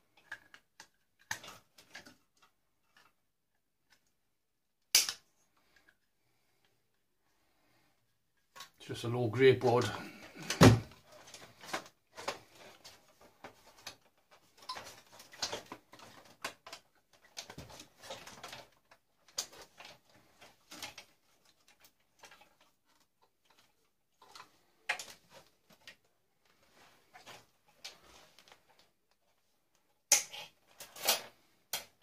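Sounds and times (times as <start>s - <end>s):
plastic and metal parts rattling: 0.1s - 3.2s, 9.6s - 32.0s.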